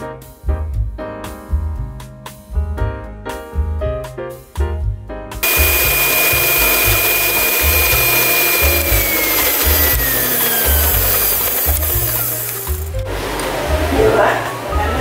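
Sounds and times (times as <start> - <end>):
piano music: 2.8 - 15.0
stand mixer motor whining: 5.4 - 13.3.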